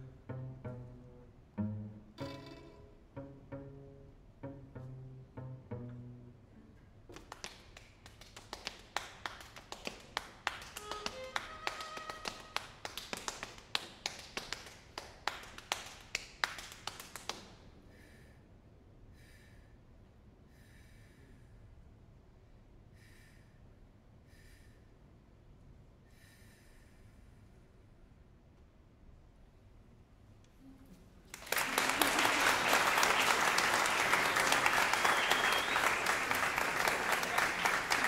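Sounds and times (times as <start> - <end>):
string quartet playing: 0.0 - 6.8, 10.7 - 12.6
audience clapping: 7.1 - 17.5, 31.3 - 38.0.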